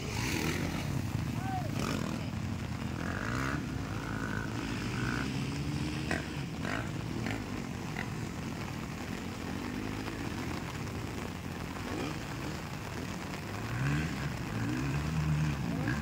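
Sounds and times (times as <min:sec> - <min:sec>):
dirt bike engines revving: 0:00.0 - 0:16.0
rain hissing: 0:00.0 - 0:16.0.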